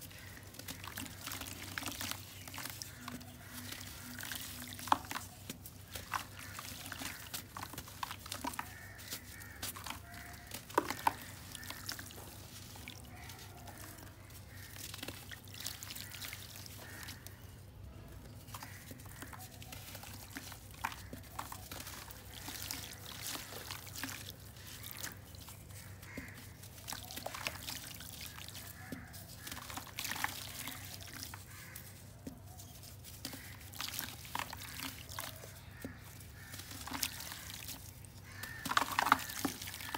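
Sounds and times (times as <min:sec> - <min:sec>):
water pouring into a tub: 0:00.0 - 0:17.0, 0:19.1 - 0:25.6, 0:26.2 - 0:31.8, 0:33.3 - 0:39.9
earth pattering into water: 0:33.1 - 0:39.9.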